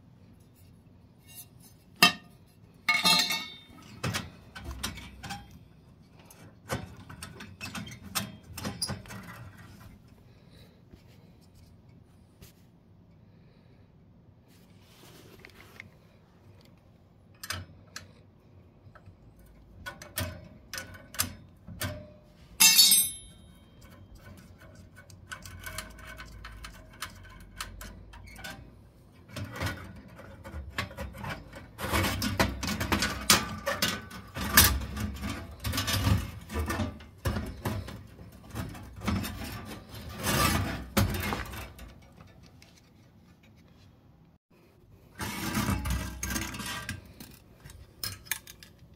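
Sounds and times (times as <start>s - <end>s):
metal clank: 2.0s - 4.3s, 21.9s - 23.6s
metal parts clicking and knocking: 2.9s - 5.6s, 18.9s - 42.9s, 45.2s - 48.9s.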